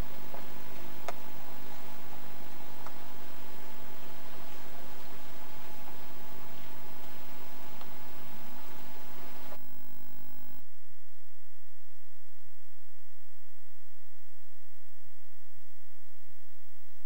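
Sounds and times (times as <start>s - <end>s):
outdoor background hiss: 0.0s - 10.6s
faint electrical hum: 0.0s - 17.0s.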